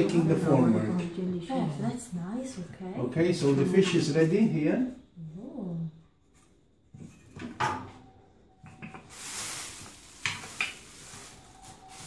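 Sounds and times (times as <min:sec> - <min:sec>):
plastic bag rustling: 0:08.8 - 0:12.0.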